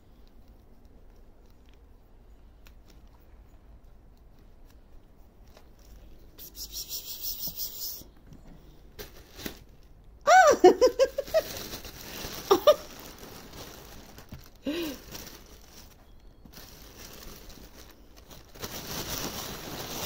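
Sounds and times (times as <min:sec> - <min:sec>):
person giggling: 0:10.3 - 0:11.6, 0:12.3 - 0:13.0
gift wrapping rustling: 0:10.6 - 0:20.0.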